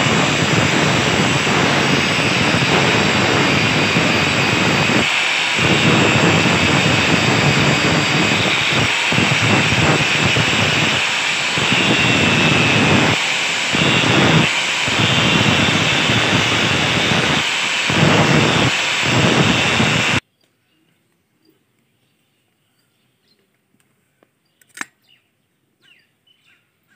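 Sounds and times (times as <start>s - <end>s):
angle grinder grinding steel: 0.0s - 20.2s.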